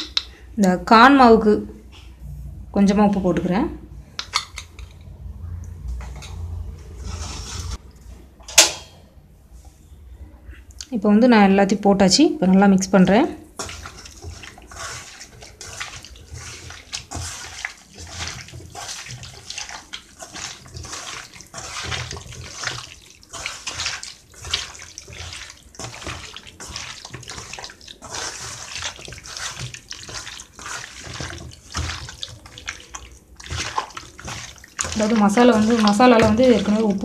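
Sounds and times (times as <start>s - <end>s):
hand squelching raw chicken: 13.5s - 37.0s.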